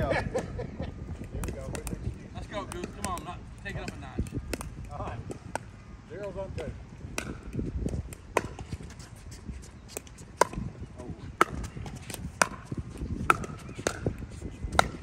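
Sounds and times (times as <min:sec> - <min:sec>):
paddle hitting plastic ball: 0:07.1 - 0:08.6, 0:11.4 - 0:15.0.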